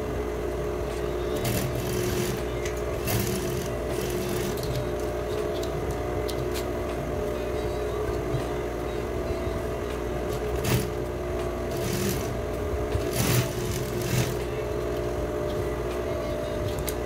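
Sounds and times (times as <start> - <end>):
electric sewing machine running: 1.2 - 5.2, 10.3 - 14.8.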